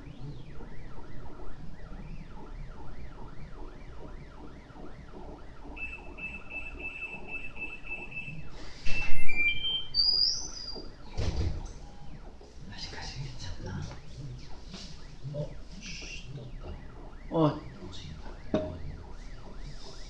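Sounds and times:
printer stepper motors whining: 0:00.0 - 0:20.0
high electronic beeping: 0:05.7 - 0:11.0
short beeps: 0:08.9 - 0:10.0.

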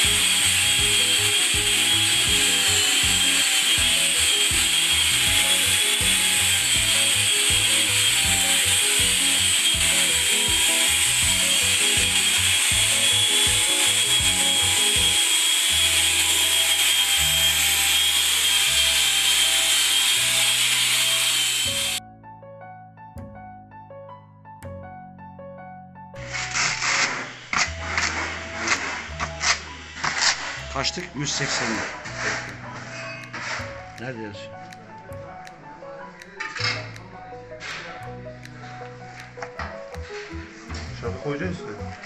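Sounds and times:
drywall sander whirring: 0:00.0 - 0:22.0, 0:26.2 - 0:33.7
background music: 0:00.0 - 0:42.0.

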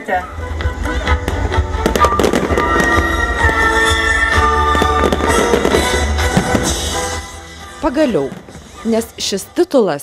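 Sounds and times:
music with long held notes: 0:00.0 - 0:09.6
fireworks popping and crackling: 0:00.9 - 0:07.3, 0:07.9 - 0:09.3.

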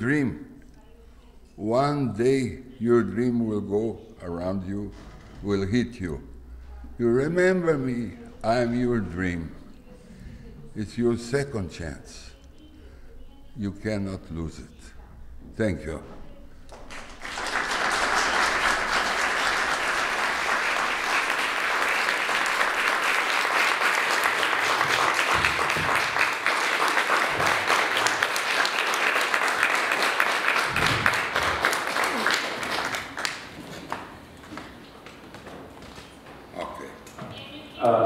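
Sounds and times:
audience applauding: 0:16.7 - 0:34.1.

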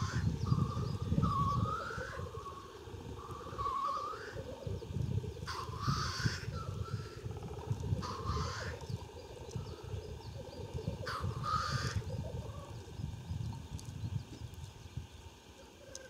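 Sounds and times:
grouse bubbling coo: 0:00.0 - 0:14.6
grouse hissing sneeze-calls: 0:03.3 - 0:04.6, 0:08.0 - 0:08.8.

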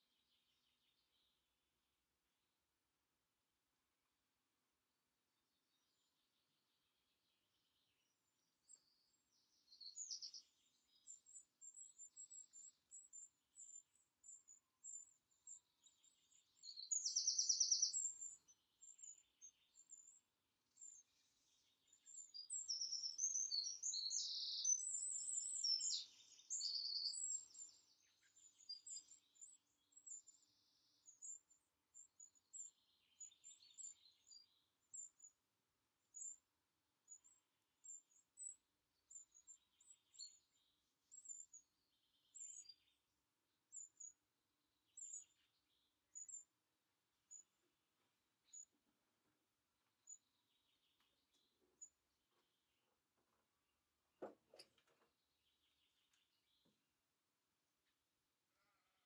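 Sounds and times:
songbirds chipping: 0:00.0 - 0:02.6, 0:03.8 - 0:59.0
warbled birdsong: 0:05.4 - 0:59.0.

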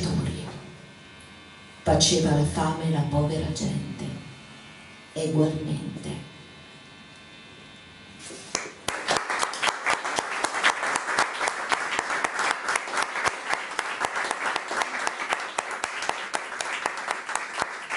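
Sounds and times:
audience applause: 0:08.6 - 0:17.9.

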